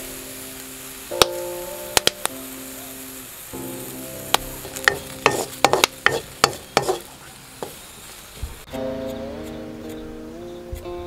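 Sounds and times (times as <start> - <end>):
wooden spatula scraping a wok: 4.7 - 8.0.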